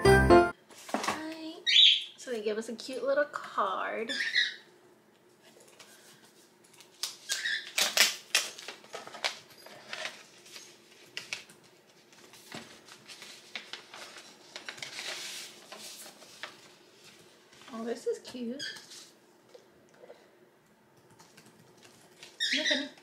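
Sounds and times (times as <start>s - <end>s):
paper envelope tearing and crinkling: 6.8s - 9.4s, 10.0s - 16.7s.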